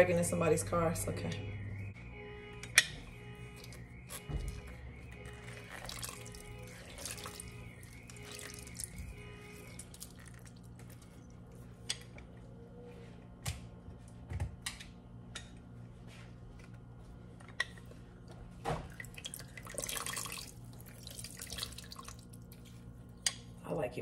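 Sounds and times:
low steady hum: 0:00.0 - 0:24.0
juice dripping into butter: 0:05.3 - 0:11.6, 0:18.9 - 0:23.4
stream of juice: 0:05.4 - 0:11.1, 0:18.9 - 0:22.6.

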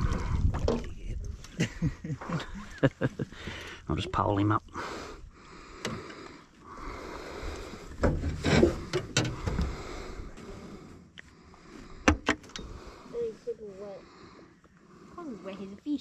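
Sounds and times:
knocks and rubbing in aluminium boat: 0:00.2 - 0:01.3, 0:07.9 - 0:09.9.

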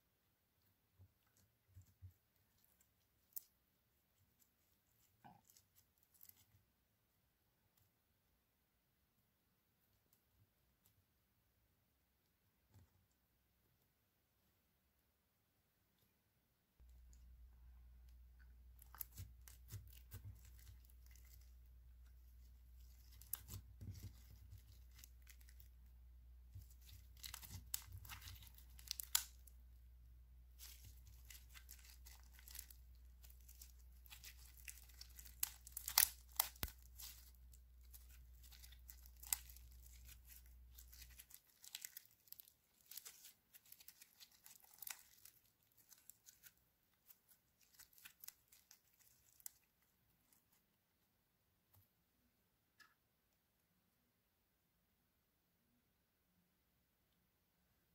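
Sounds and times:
slime crackling and popping: 0:18.7 - 0:21.5, 0:22.4 - 0:25.7, 0:26.5 - 0:29.5, 0:30.5 - 0:49.7.

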